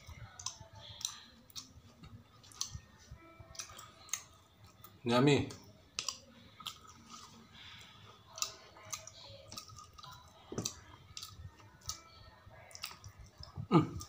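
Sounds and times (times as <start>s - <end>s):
wet lip smacks and mouth clicks: 6.0s - 7.2s.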